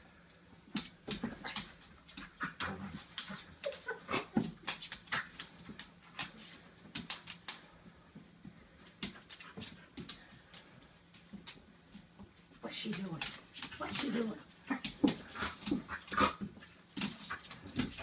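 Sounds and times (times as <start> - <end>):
dogs play-fighting noises: 0.3 - 18.0
dogs scuffling: 0.4 - 18.0.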